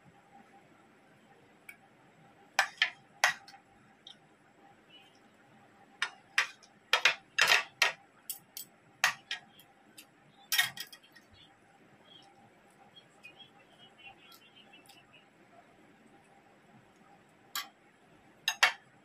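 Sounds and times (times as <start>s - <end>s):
cutlery clinking on a plate: 6.0s - 9.5s, 10.5s - 11.0s, 18.5s - 18.8s.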